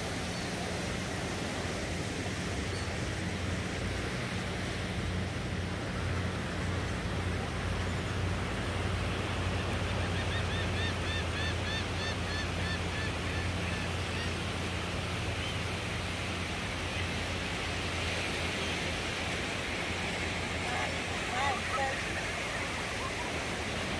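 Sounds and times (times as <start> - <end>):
surf: 0.0 - 23.9
gull calling: 10.0 - 14.5, 20.6 - 23.7.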